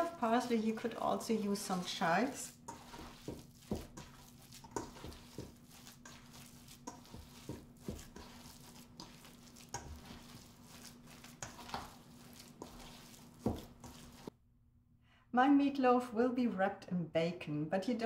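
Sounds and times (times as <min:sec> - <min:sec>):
hands squelching ground meat: 0:00.0 - 0:14.3.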